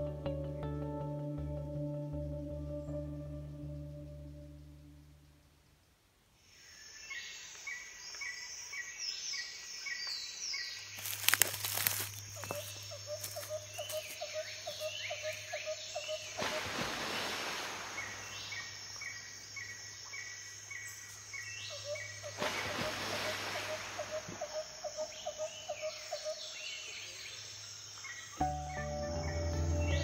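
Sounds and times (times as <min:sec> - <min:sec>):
birds chirping: 0:08.4 - 0:16.4
crunching rustle: 0:10.8 - 0:15.4
high insect buzz: 0:11.0 - 0:15.6.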